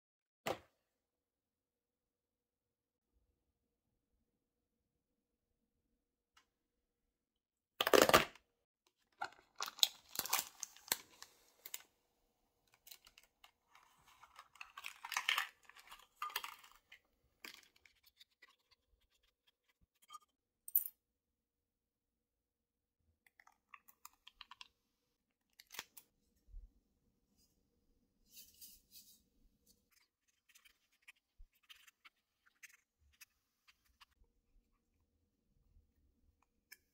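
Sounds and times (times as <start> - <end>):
packaging crinkling and rustling: 9.2 - 11.9, 12.7 - 16.9
packet tearing: 9.2 - 11.9, 12.8 - 16.8.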